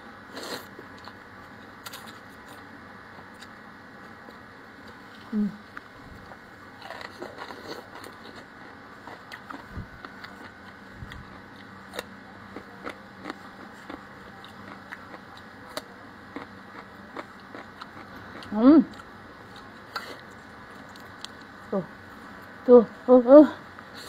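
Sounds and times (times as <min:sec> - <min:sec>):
chewing cucumber crunches: 0:06.2 - 0:21.5.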